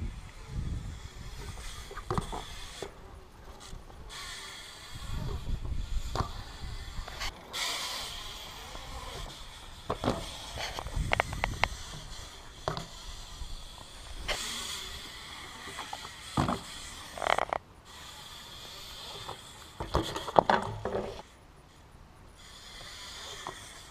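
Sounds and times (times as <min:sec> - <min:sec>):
wind rumbling on microphone: 0:00.0 - 0:07.4, 0:08.1 - 0:15.0
bike tyres rolling on concrete: 0:00.0 - 0:17.6, 0:18.6 - 0:21.4
bikes knocking on concrete: 0:09.1 - 0:13.0, 0:15.6 - 0:17.6, 0:19.2 - 0:21.2.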